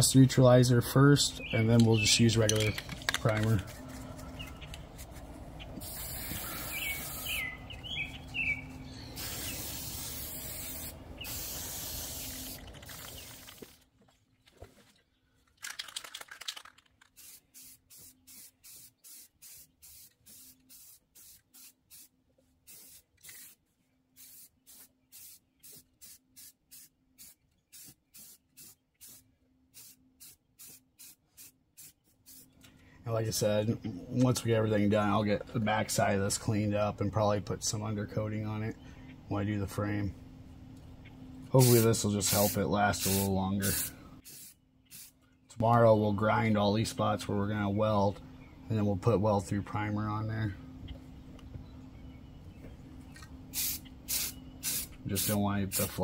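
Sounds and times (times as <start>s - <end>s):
aerosol can spraying: 5.8s - 7.4s, 9.2s - 13.5s, 17.2s - 22.1s, 22.7s - 23.6s, 24.2s - 29.2s, 29.8s - 32.5s, 41.6s - 45.1s, 53.6s - 56.0s.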